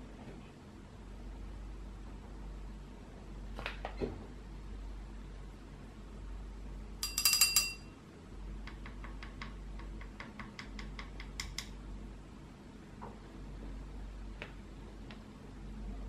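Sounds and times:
paintbrush clinking on glass jar: 7.0 - 7.9.

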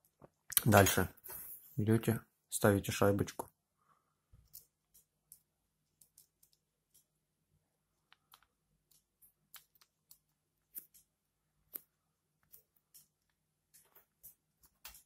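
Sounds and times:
small plastic parts clicking: 4.4 - 7.1, 8.1 - 15.0.

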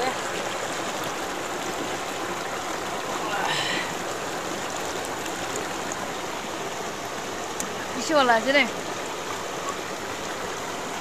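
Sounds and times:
flowing river water: 0.0 - 11.0.

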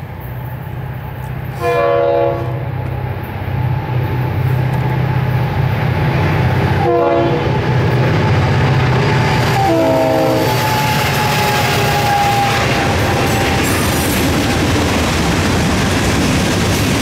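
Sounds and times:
diesel locomotive engines rumbling: 0.0 - 17.0
train air horn blasts: 1.5 - 2.8, 6.8 - 7.6, 9.5 - 13.9.

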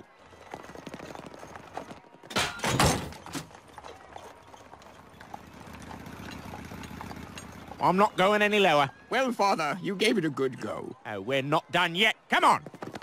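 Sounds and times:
horse hooves clip-clopping on road: 0.0 - 9.0, 12.6 - 13.0.

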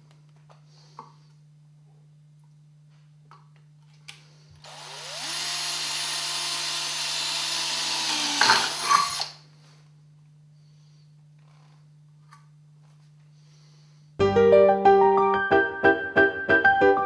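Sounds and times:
cordless drill drilling metal: 4.6 - 9.4.

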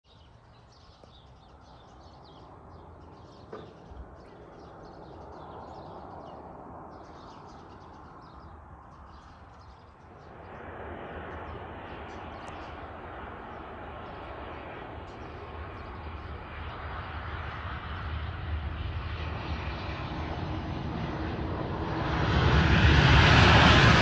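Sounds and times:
small birds chirping: 0.1 - 20.9
distant rumble: 2.1 - 18.7.

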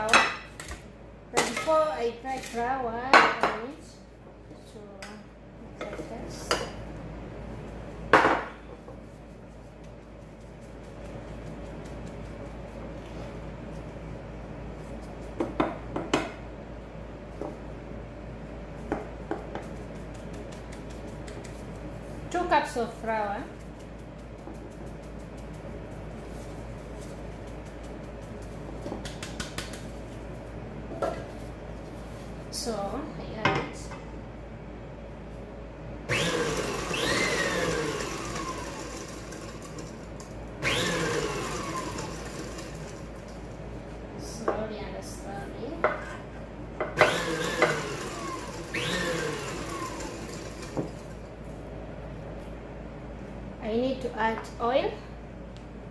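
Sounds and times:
stand mixer whining: 36.1 - 43.4, 47.0 - 51.2.

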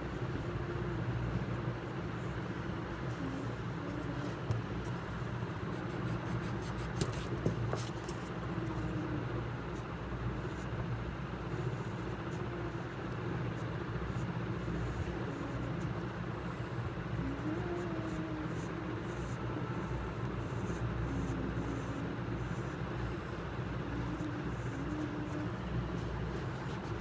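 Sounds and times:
low background hum: 0.0 - 27.0
pencil scratching on paper: 5.6 - 9.0, 23.7 - 27.0.

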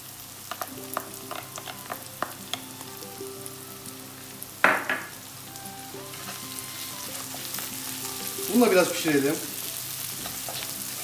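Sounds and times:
onions sizzling in oil: 0.0 - 11.0
wooden spatula stirring: 0.5 - 2.6, 6.0 - 9.0.

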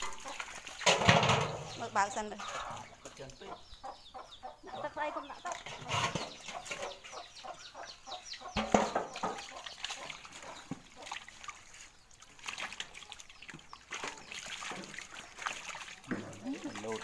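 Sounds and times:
fish splashing in metal basin: 0.0 - 3.4, 5.5 - 7.4, 8.4 - 17.0
chicks peeping: 0.1 - 11.2.

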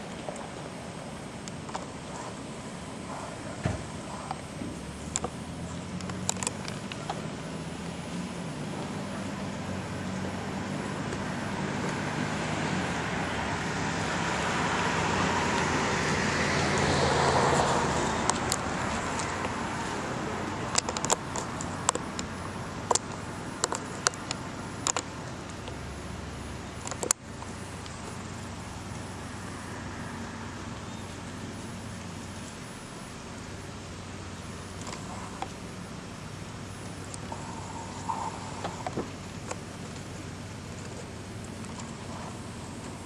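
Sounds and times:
car driving past: 9.2 - 20.8
sharp clicks: 20.6 - 25.8, 26.8 - 28.2.

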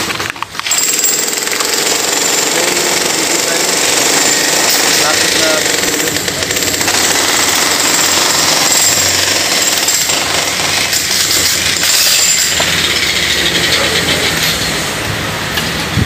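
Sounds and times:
jackhammer breaking concrete: 0.0 - 14.6.

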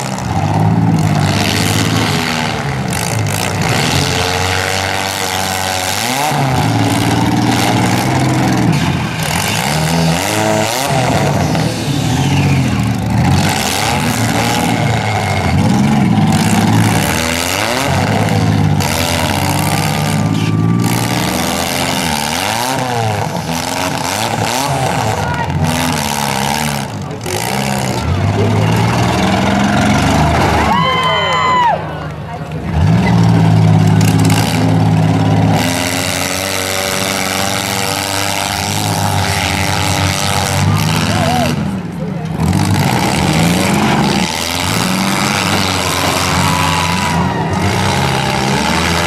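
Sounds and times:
car engines revving: 0.0 - 49.0.

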